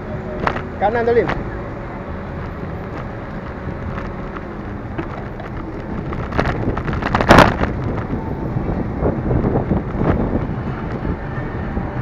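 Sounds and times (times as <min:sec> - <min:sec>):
road rumble: 0:00.0 - 0:12.0
wind buffeting: 0:00.0 - 0:12.0.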